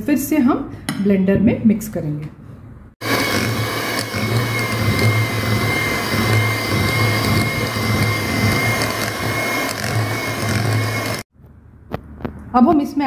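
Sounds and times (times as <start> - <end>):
electric hand mixer whining: 3.0 - 11.3.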